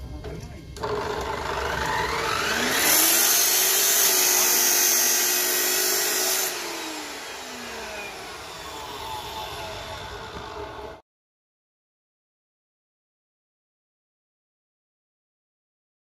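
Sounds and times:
chop saw grinding through steel: 0:00.8 - 0:10.7
saw motor whine: 0:00.8 - 0:11.0.

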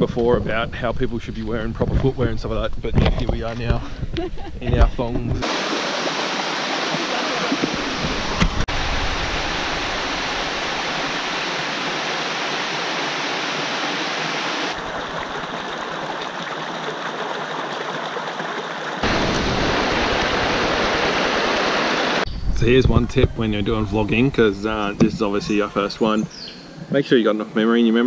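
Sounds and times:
creek water rushing over rocks: 0:05.4 - 0:22.2.

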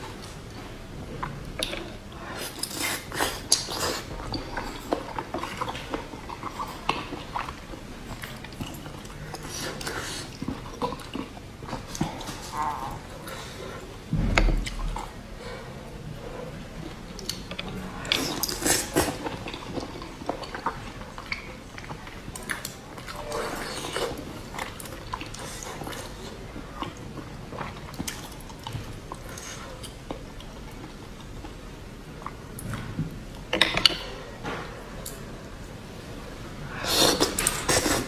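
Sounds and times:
chewing and biting: 0:01.2 - 0:13.9.

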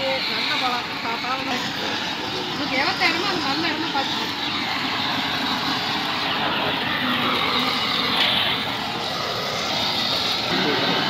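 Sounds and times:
gas blowtorch hissing: 0:00.0 - 0:11.0.

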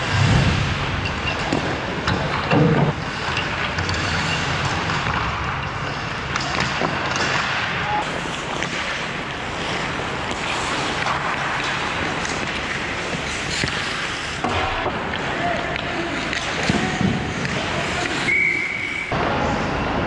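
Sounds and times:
faint knocks of sticks and puck: 0:01.3 - 0:18.3
skates scraping on ice: 0:03.0 - 0:14.4, 0:16.0 - 0:19.1.

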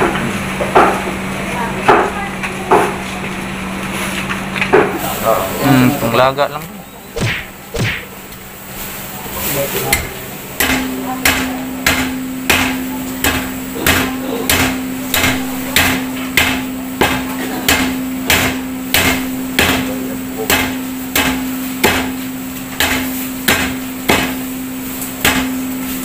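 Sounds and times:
steady low hum: 0:03.4 - 0:08.7, 0:09.7 - 0:25.8
cleaver chopping on wooden block: 0:07.2 - 0:08.1.

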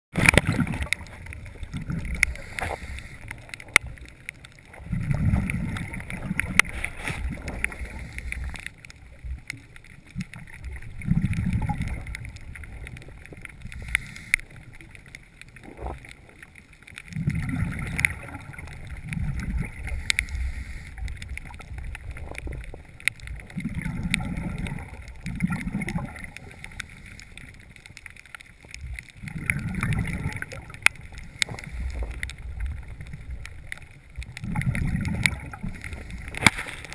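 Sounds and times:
faint clicks: 0:00.2 - 0:36.9
exhaled breath bubbling underwater: 0:04.8 - 0:08.8, 0:10.4 - 0:12.7, 0:17.1 - 0:21.6, 0:23.4 - 0:27.4, 0:29.1 - 0:33.0, 0:34.4 - 0:36.9.

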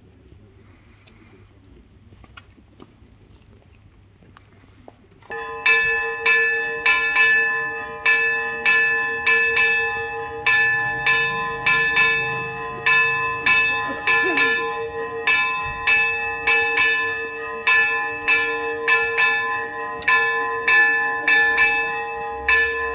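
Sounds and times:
church bells ringing: 0:05.3 - 0:22.9.

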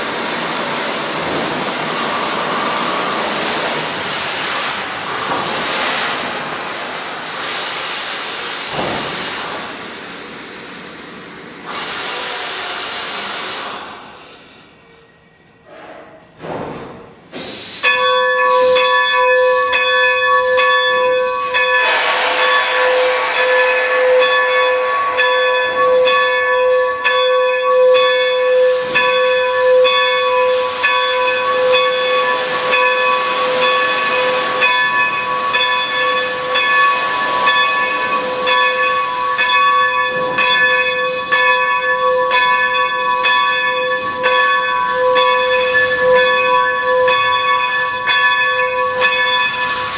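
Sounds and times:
steam hissing: 0:00.0 - 0:14.8, 0:17.3 - 0:18.0, 0:21.4 - 0:27.0, 0:28.4 - 0:48.0, 0:48.8 - 0:49.9
locomotive bell ringing: 0:17.8 - 0:49.9.

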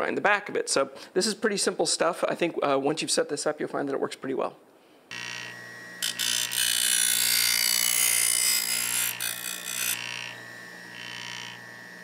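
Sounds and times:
bench grinder motor hum: 0:05.1 - 0:12.0
steel grinding on wheel: 0:05.1 - 0:12.0.

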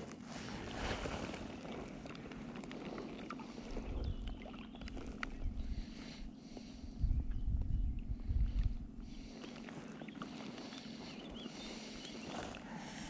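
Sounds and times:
water lapping against boat: 0:00.0 - 0:07.0, 0:08.0 - 0:13.0
steady low hum: 0:00.0 - 0:13.0
wind on microphone rumble: 0:03.5 - 0:09.5.

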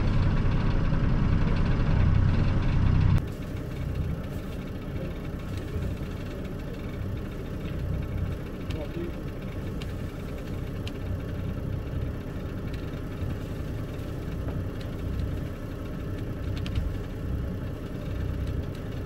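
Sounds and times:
boat engine idling: 0:00.0 - 0:19.0
faint clicks: 0:03.2 - 0:19.0.

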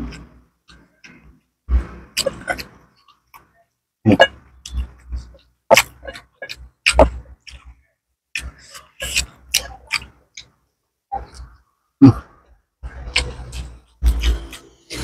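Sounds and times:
open-mouthed chewing and lip-smacking: 0:04.1 - 0:14.6.

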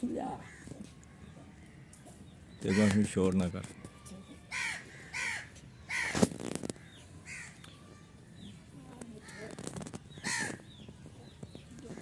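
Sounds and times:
crows cawing: 0:00.1 - 0:03.3, 0:04.5 - 0:07.7, 0:09.2 - 0:10.8.

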